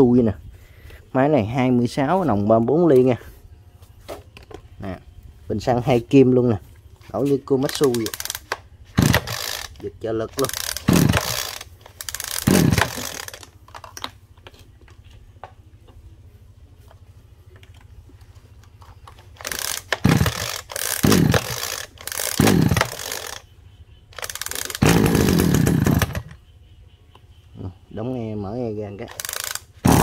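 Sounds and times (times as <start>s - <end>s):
pull-cord starter cranking whirs: 7.4s - 14.2s, 17.7s - 26.4s, 29.1s - 30.0s.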